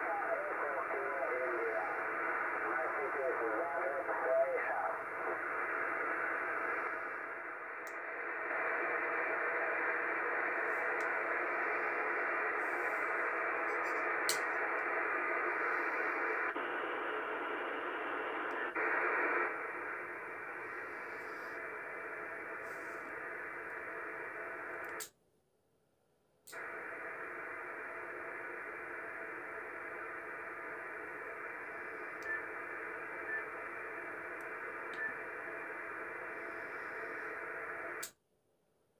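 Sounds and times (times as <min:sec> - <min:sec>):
radio receiver hiss and static: 0:00.0 - 0:25.1, 0:26.5 - 0:38.1
faint clicks: 0:24.8 - 0:25.1.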